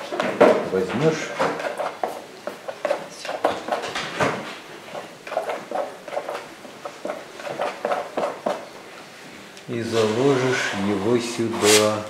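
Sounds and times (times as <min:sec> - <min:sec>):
painting tools clicking and scraping: 0:00.0 - 0:08.7.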